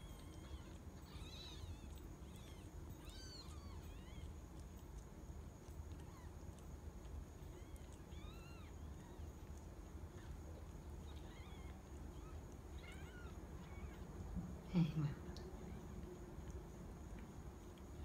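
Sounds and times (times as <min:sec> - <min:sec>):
newborn kittens mewing: 0:00.0 - 0:04.6, 0:07.4 - 0:09.5, 0:10.1 - 0:14.9
faint low hum: 0:00.0 - 0:18.0.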